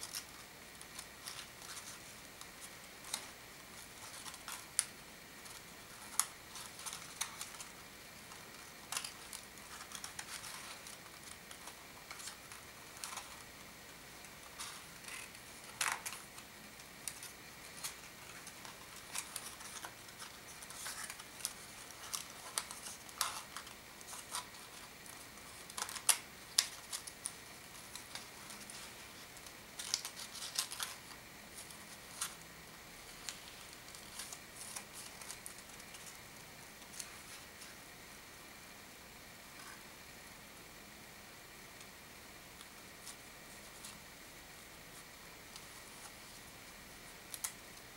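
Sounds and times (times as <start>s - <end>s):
paper rustling and crinkling: 0.0s - 32.4s, 33.0s - 37.8s.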